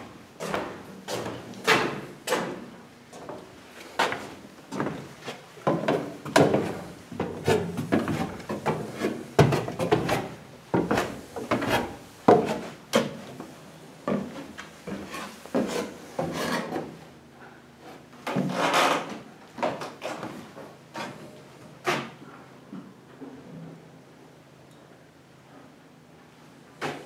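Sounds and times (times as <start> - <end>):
footsteps on wooden stairs: 4.0 - 15.8.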